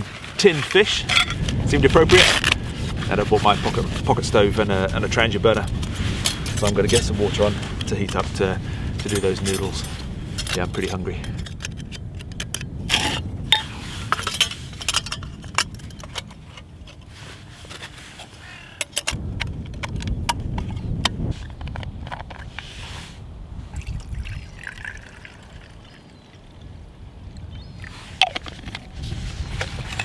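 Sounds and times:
metal plates clinking: 0:01.0 - 0:01.4, 0:09.1 - 0:16.7.

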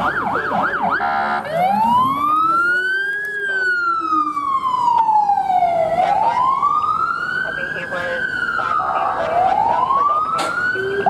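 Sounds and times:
siren horn blast: 0:00.0 - 0:05.1, 0:07.7 - 0:11.0
low rumbler siren tone: 0:00.0 - 0:11.0
police siren wailing: 0:00.0 - 0:11.0.

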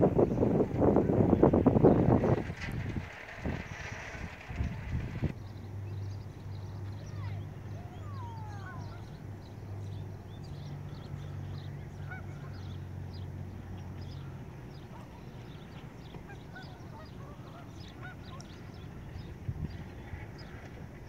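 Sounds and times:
steady low hum: 0:00.0 - 0:21.0
small birds chirping: 0:04.6 - 0:21.0
distant geese honking: 0:06.0 - 0:21.0.

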